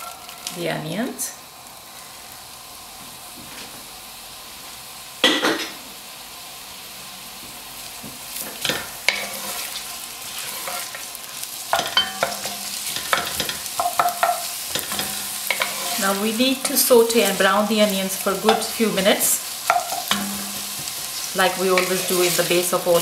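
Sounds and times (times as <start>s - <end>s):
onions sizzling in hot oil: 0.0s - 23.0s
wooden spoon scraping a pot: 9.1s - 11.0s, 12.2s - 17.4s.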